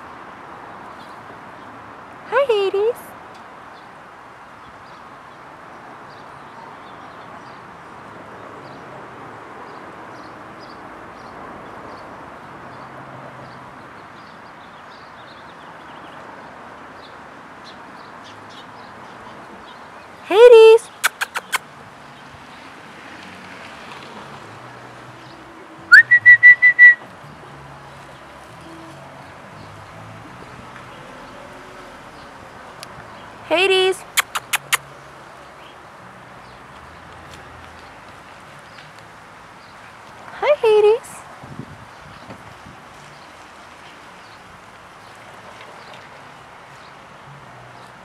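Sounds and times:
faint short high chirps: 0:25.9 - 0:27.0
person whistling: 0:25.9 - 0:27.0.

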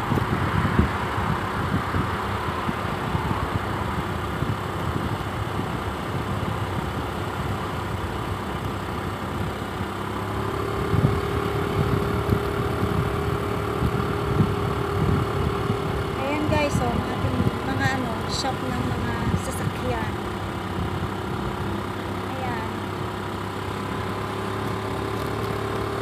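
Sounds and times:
wind buffeting microphone: 0:00.0 - 0:08.0, 0:10.7 - 0:21.8
bicycle tyres rolling on asphalt: 0:00.0 - 0:26.0
steady hum: 0:10.8 - 0:25.0.

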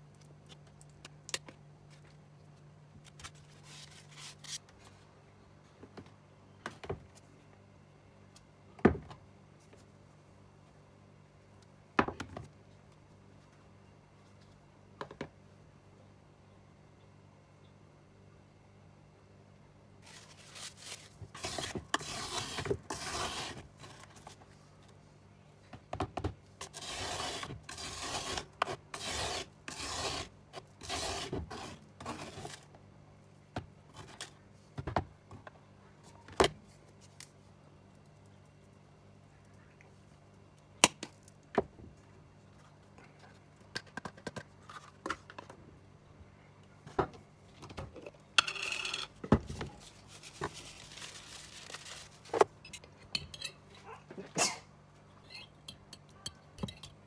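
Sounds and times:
metal spoon scraping a plastic tub: 0:21.3 - 0:23.6, 0:26.6 - 0:32.6.

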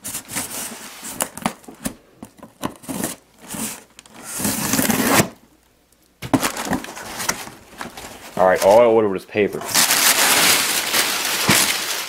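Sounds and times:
knife scraping through packing tape: 0:02.7 - 0:05.4.

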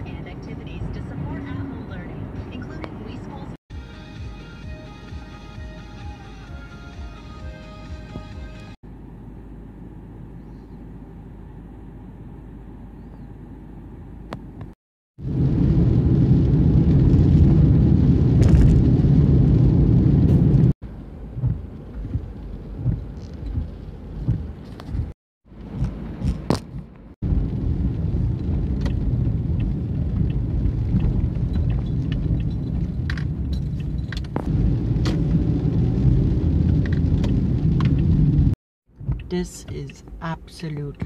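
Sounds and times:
car driving on wet road: 0:00.0 - 0:03.5, 0:15.2 - 0:41.0
wind noise: 0:15.2 - 0:39.4.

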